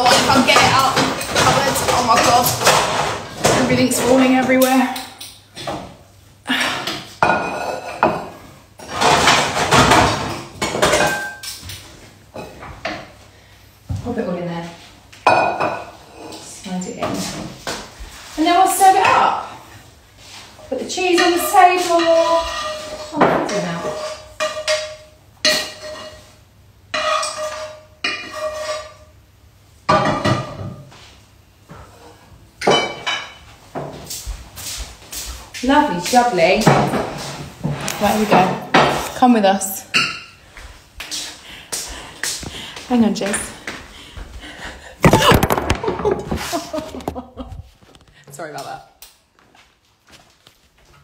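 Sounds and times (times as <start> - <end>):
ceramic bowls knocking and clattering: 0.0 - 4.9, 7.2 - 11.7, 32.6 - 33.9
dishes and cutlery clinking: 0.0 - 5.8, 7.2 - 11.8, 21.1 - 26.3, 26.9 - 29.1, 32.6 - 34.1.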